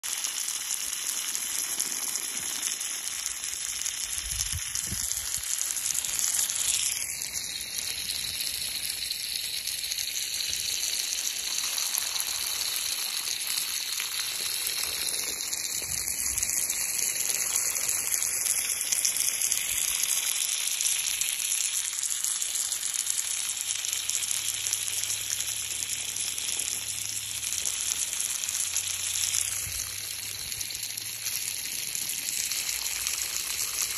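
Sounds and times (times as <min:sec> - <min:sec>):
hose water spraying: 0:00.0 - 0:33.9.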